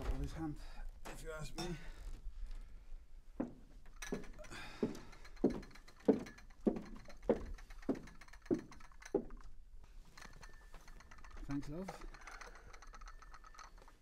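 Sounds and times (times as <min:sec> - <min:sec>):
heavy footsteps on wooden floor: 0:03.3 - 0:09.4.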